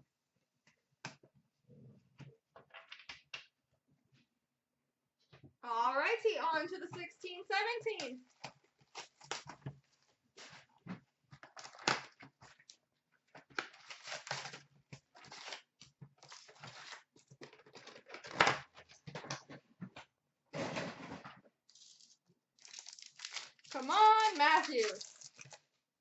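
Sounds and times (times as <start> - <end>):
cardboard and foil packs rustling: 8.3 - 10.7, 11.4 - 12.8, 13.4 - 19.1, 21.7 - 25.8.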